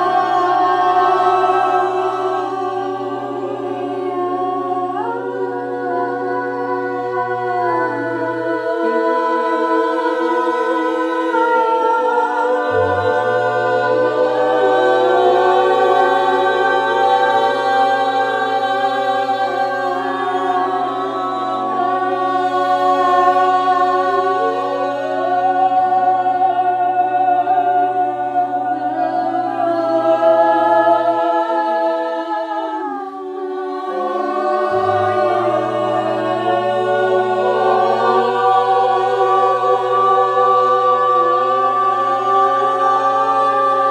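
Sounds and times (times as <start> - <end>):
low held tone: 33.9 - 43.1.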